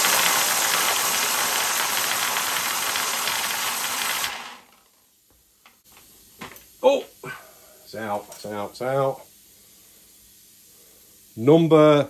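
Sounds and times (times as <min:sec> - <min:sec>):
air blow gun hissing: 0:00.0 - 0:04.7
small balls whirling in bottle: 0:00.0 - 0:05.1.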